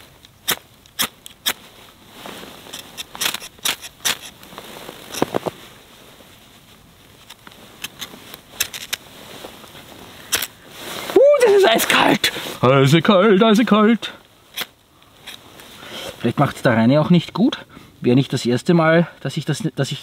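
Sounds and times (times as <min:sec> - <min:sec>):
blade scraping ferro rod: 0:02.7 - 0:04.4.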